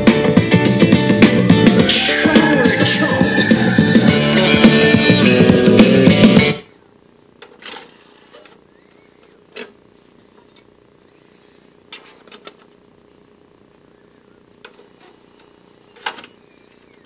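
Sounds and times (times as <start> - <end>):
disc tray opening: 14.7 - 17.0.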